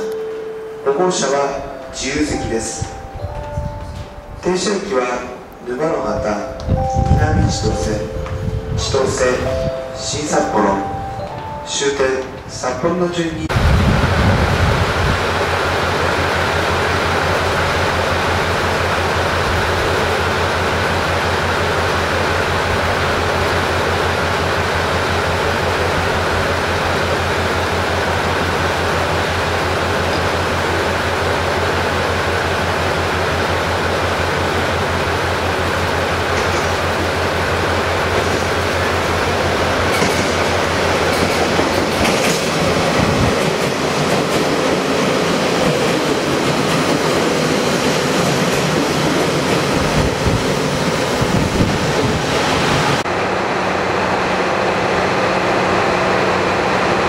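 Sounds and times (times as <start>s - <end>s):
train low hum: 0.0s - 57.0s
train wheels on rails: 2.4s - 4.4s, 13.5s - 57.0s.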